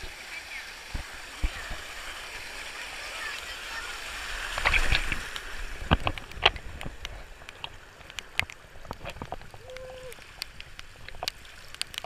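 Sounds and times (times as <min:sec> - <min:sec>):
rushing water: 0:00.0 - 0:12.0
water splashes: 0:00.0 - 0:12.0.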